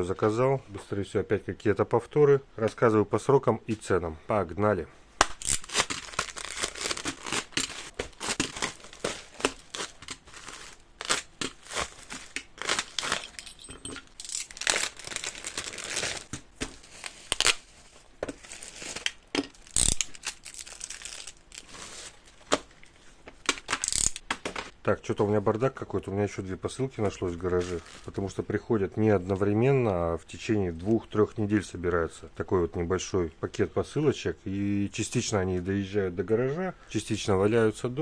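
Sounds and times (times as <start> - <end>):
packaging tearing and crinkling: 5.2 - 13.4, 14.1 - 22.6, 23.4 - 24.2.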